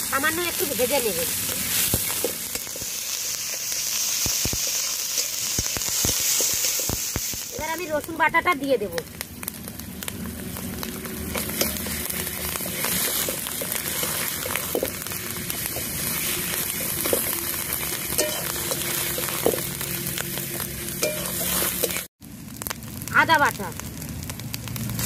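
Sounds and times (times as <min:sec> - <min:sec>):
paste sizzling in a wok: 0:00.0 - 0:23.0
metal spatula scraping a pan: 0:21.0 - 0:22.0.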